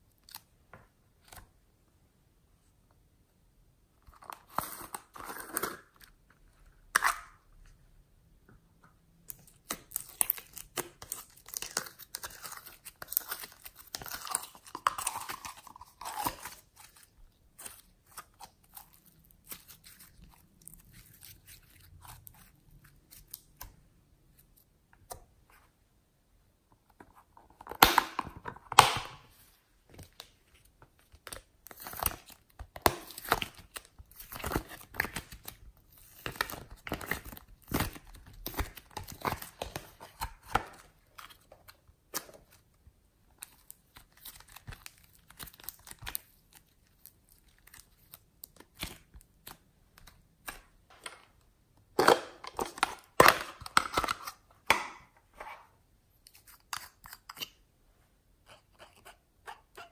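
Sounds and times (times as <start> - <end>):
clay tearing and crackling: 9.3 - 23.8.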